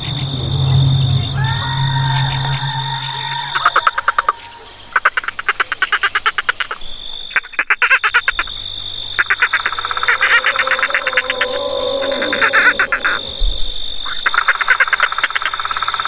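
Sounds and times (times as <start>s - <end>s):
high-pitched whine: 0.0s - 5.0s, 9.0s - 16.0s
frogs croaking: 0.0s - 16.0s.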